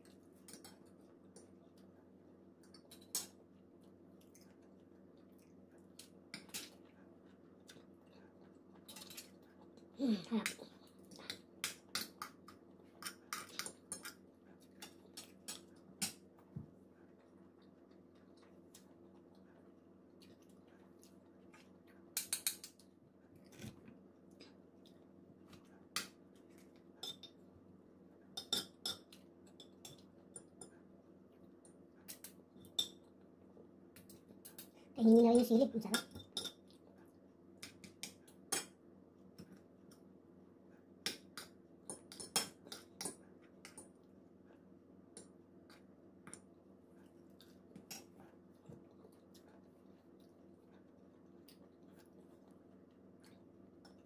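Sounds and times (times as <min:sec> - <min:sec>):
low steady hum: 0:00.0 - 0:54.0
mouth and cutlery noises: 0:11.3 - 0:16.2, 0:27.0 - 0:27.4, 0:28.4 - 0:30.7, 0:41.1 - 0:43.9
cutlery clinking on ceramic plates: 0:28.4 - 0:30.6.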